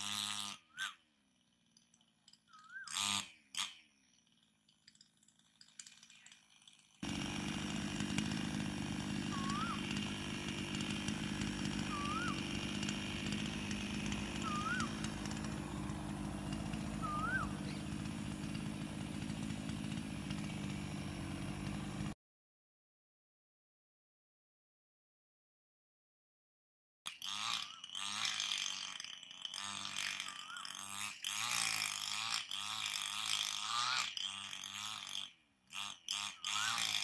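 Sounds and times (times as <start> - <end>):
low mechanical drone: 11.0 - 22.1
koel bird calling: 14.4 - 15.0, 17.0 - 17.9.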